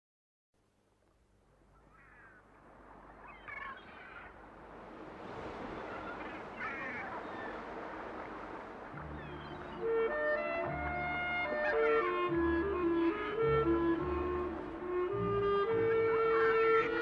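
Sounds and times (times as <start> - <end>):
rushing wind or surf: 2.4 - 17.0
bird cries with falling notes: 9.0 - 13.7.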